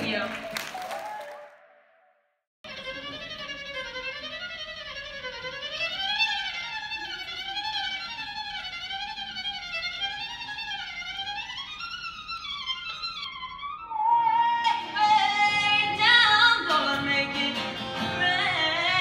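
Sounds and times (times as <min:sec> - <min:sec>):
solo violin slow melody: 0:02.7 - 0:16.0.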